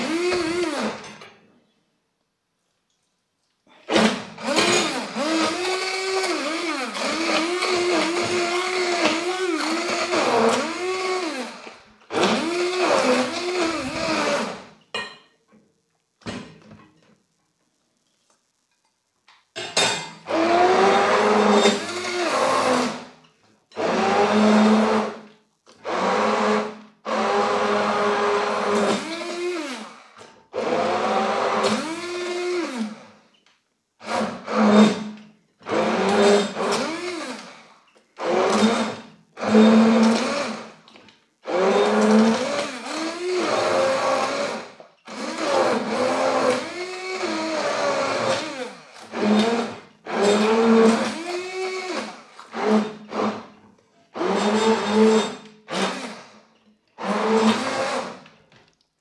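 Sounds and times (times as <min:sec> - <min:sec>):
hand blender motor whine: 0:00.0 - 0:01.0, 0:04.4 - 0:14.7, 0:20.3 - 0:23.1, 0:23.8 - 0:25.2, 0:25.8 - 0:33.1, 0:35.6 - 0:40.8, 0:41.4 - 0:53.5, 0:54.2 - 0:56.4, 0:57.0 - 0:58.2.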